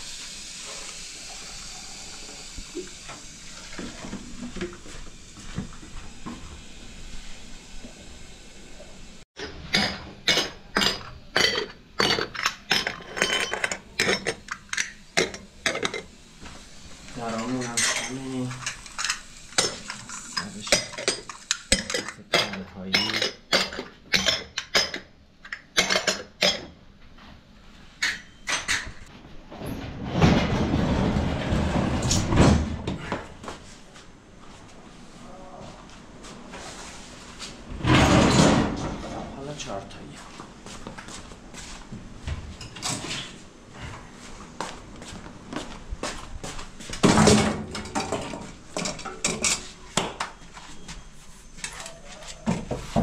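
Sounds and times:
dishes and cutlery clattering: 0:09.4 - 0:16.1, 0:17.4 - 0:26.8, 0:47.0 - 0:49.7.

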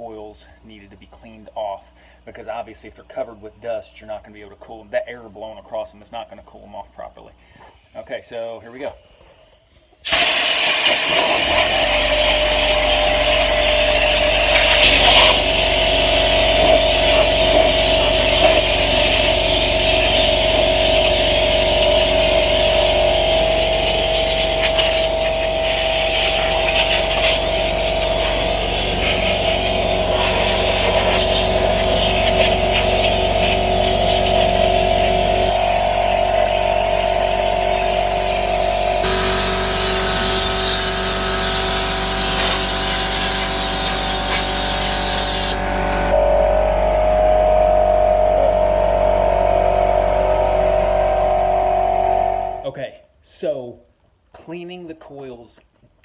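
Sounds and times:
compressed air hissing: 0:10.1 - 0:34.2, 0:39.0 - 0:46.2
low hum: 0:12.1 - 0:52.7.

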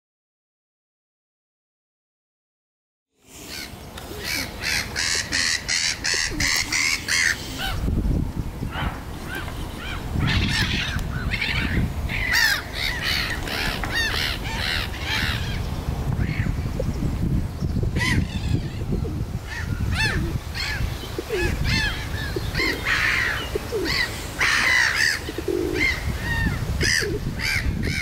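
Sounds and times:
waterbirds nasal calls: 0:03.3 - 0:08.0, 0:08.6 - 0:17.0, 0:17.9 - 0:28.0.

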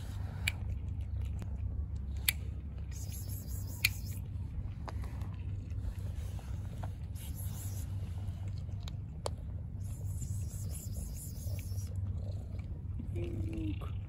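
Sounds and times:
dry kibble crunching: 0:00.0 - 0:14.0
kitten purring: 0:04.9 - 0:14.0.

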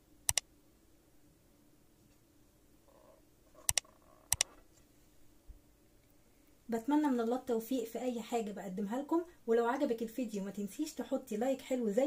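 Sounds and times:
faint steady hum: 0:00.0 - 0:12.0
mouse double clicks: 0:03.6 - 0:04.6.

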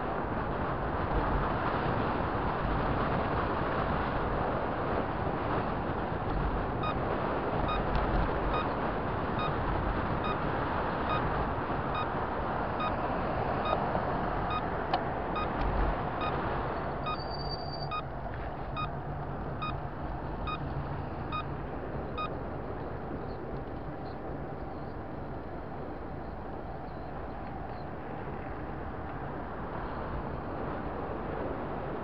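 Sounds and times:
vehicle road and wind noise: 0:00.0 - 0:32.0
short electronic beeps: 0:06.8 - 0:07.0, 0:08.5 - 0:08.8, 0:11.1 - 0:11.3, 0:11.9 - 0:12.2, 0:12.8 - 0:13.0, 0:13.6 - 0:13.8, 0:14.5 - 0:14.7, 0:15.4 - 0:15.6, 0:17.0 - 0:18.1, 0:20.4 - 0:20.6.

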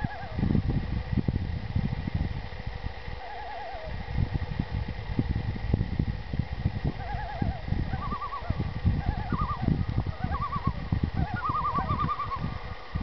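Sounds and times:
loons tremolo calls: 0:00.0 - 0:00.6, 0:03.0 - 0:04.2, 0:06.8 - 0:13.0
low uneven noise: 0:00.0 - 0:13.0.

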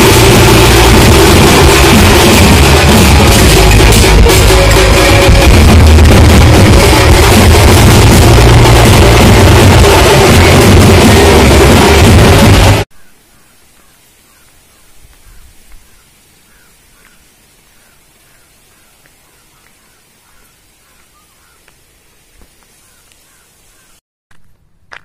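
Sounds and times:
chirping animal calls: 0:12.9 - 0:21.8, 0:22.7 - 0:24.0.

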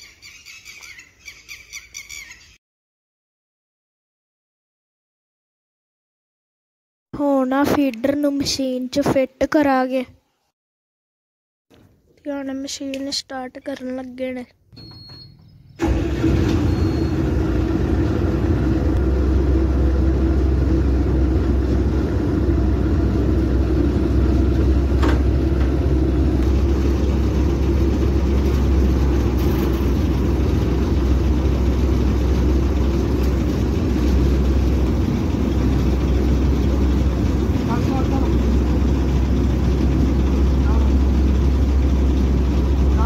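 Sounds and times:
combine harvester diesel engine: 0:15.8 - 0:43.0.

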